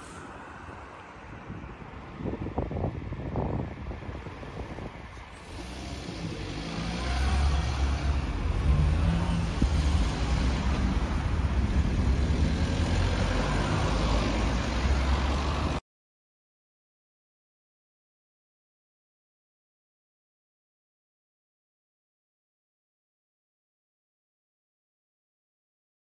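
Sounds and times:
car driving past: 0:05.3 - 0:15.8.

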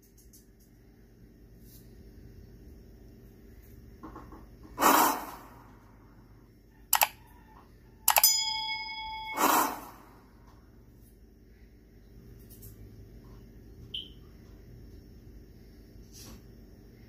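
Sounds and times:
mouse clicks: 0:06.9 - 0:07.2, 0:08.1 - 0:08.3
bell ding: 0:08.1 - 0:09.7.

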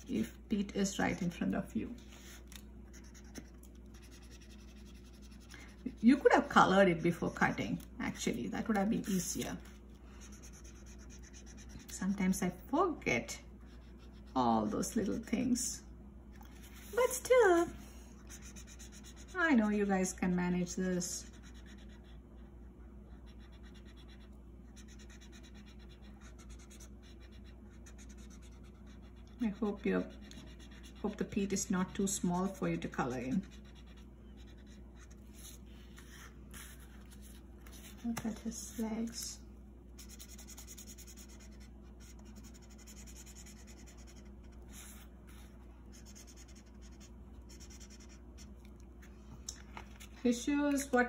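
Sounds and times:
marker scribbling on paper: 0:00.8 - 0:11.8, 0:18.3 - 0:19.4, 0:23.3 - 0:38.9, 0:40.0 - 0:48.2.

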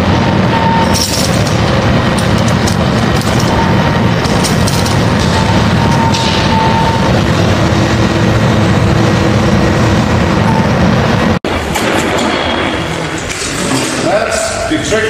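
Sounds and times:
faint whine: 0:00.0 - 0:14.8
crane mechanical rumble: 0:00.0 - 0:15.0
chains rattling: 0:00.8 - 0:05.3.

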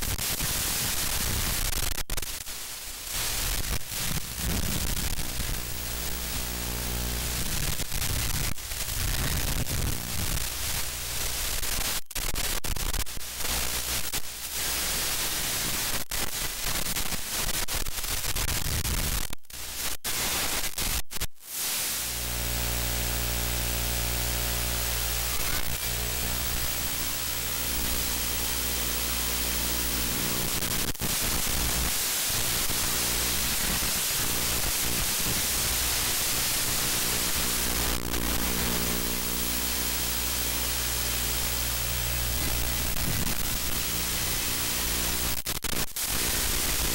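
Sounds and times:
static hiss: 0:00.0 - 0:46.9
low buzz: 0:22.0 - 0:30.5.

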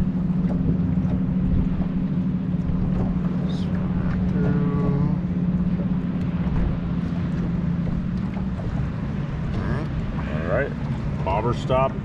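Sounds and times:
boat motor humming: 0:00.0 - 0:12.0.

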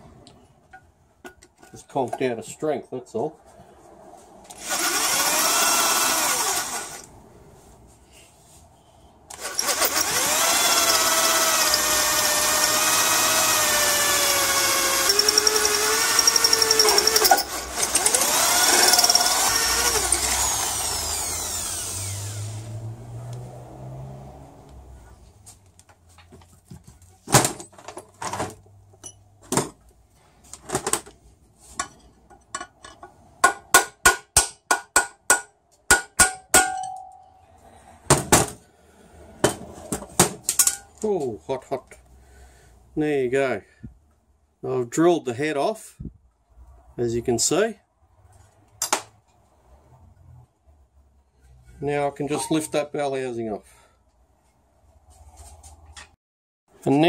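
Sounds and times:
electric drill boring through metal: 0:04.6 - 0:07.1, 0:09.3 - 0:22.7.

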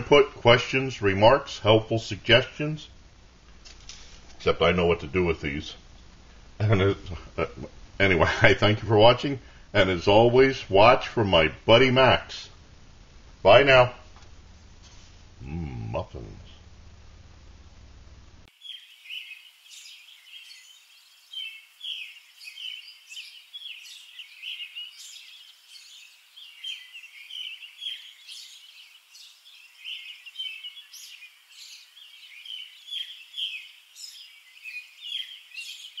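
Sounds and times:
songbirds chirping and singing: 0:18.5 - 0:36.0.

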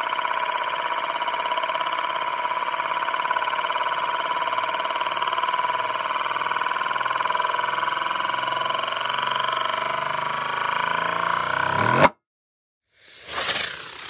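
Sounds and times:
spinning whirring tone: 0:00.0 - 0:12.1, 0:13.0 - 0:14.0.

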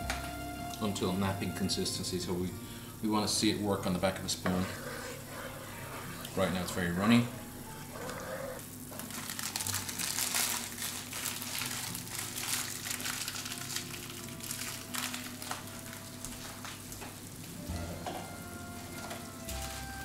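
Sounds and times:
sauce boiling with bursting bubbles: 0:04.3 - 0:20.0.

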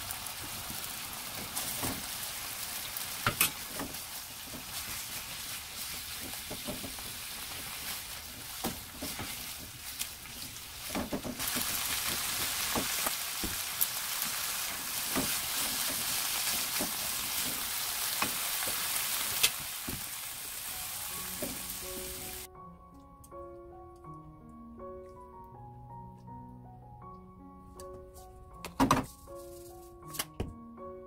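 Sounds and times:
food sizzling in frying pan: 0:00.0 - 0:22.5
light background music: 0:20.6 - 0:31.0.

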